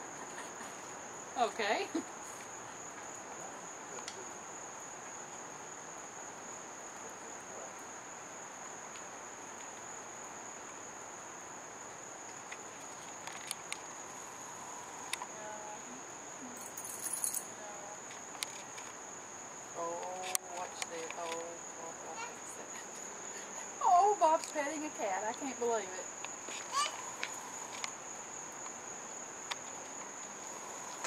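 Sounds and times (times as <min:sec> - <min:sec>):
faint outdoor background noise: 0:00.0 - 0:31.0
insects droning: 0:00.0 - 0:31.0.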